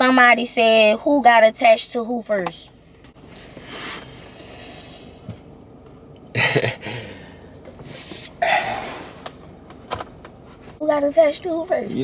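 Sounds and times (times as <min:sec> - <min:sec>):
person breathy vocal sounds: 0:08.4 - 0:09.1.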